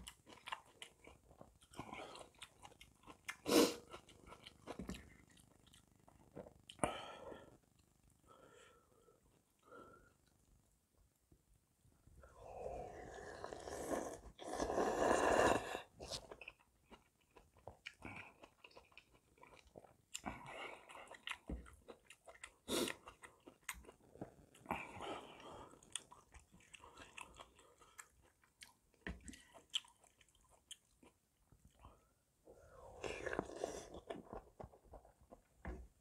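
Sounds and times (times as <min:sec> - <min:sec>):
chewing: 0:00.0 - 0:06.9, 0:16.0 - 0:32.1
loud slurp of noodles: 0:12.8 - 0:16.0.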